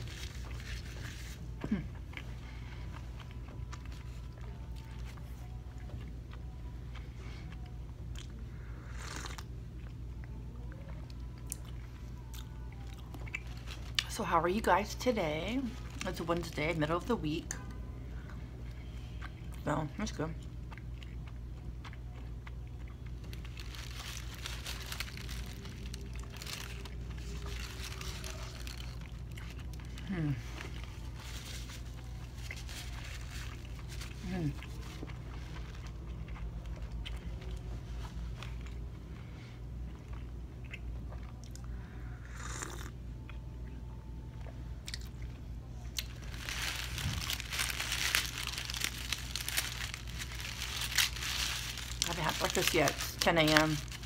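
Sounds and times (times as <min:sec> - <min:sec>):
paper wrapping crinkling: 0:00.0 - 0:01.4, 0:23.2 - 0:29.9, 0:30.6 - 0:35.8, 0:46.0 - 0:54.0
steady low hum: 0:00.0 - 0:54.0.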